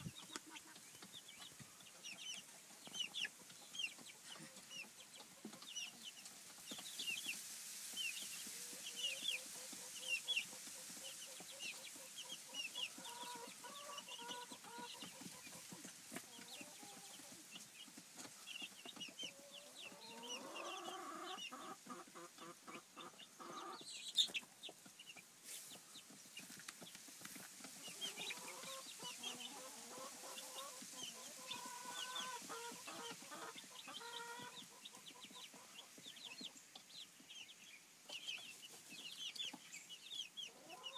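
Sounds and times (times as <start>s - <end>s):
chicks peeping: 0.0s - 40.9s
low clucking calls: 27.7s - 35.9s.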